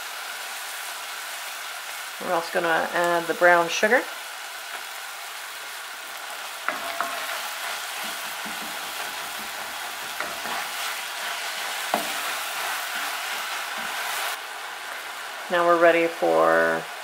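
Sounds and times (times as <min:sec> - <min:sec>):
food sizzling in a pot: 0:00.0 - 0:17.0
wooden spoon scraping a pot: 0:06.7 - 0:14.3.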